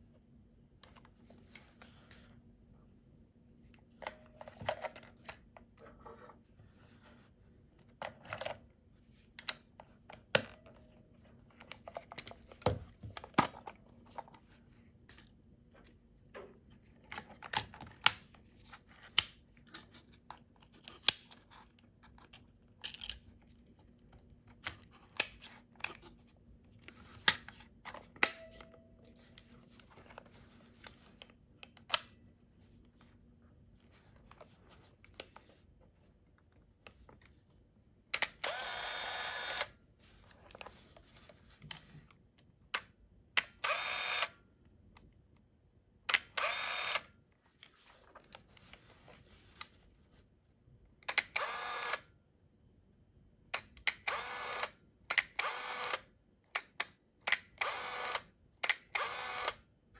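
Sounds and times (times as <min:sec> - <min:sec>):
camera plastic clicks and snaps: 0:46.1 - 0:47.1.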